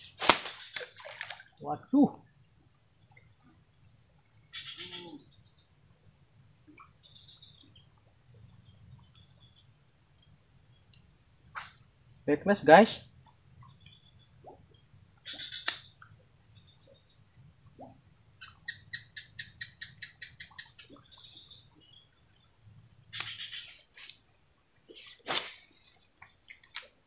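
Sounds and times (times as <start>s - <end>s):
high-pitched insect drone: 1.7s - 27.0s
bird chirps: 15.2s - 16.0s, 16.8s - 22.1s, 23.1s - 24.1s.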